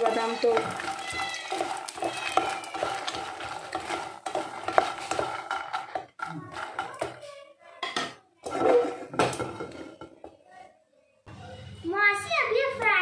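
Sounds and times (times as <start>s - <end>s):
spatula clicking on a pan: 0.0s - 7.2s
pan scraping and rattling: 0.0s - 7.4s, 8.0s - 10.2s
spatula scraping a pan: 0.0s - 7.5s.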